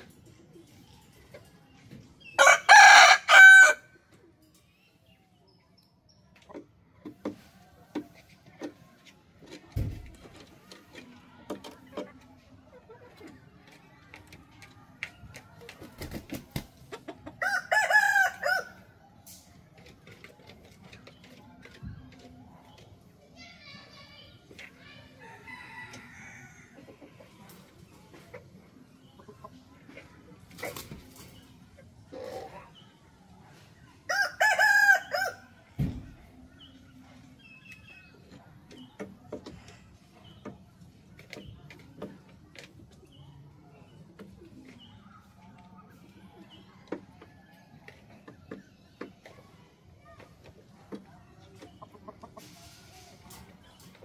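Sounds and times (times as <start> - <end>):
rooster crowing: 2.4 - 3.8.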